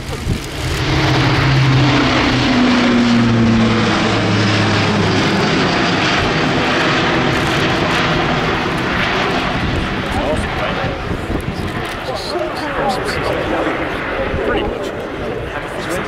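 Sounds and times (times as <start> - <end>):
turboprop aircraft engines: 0.0 - 16.0.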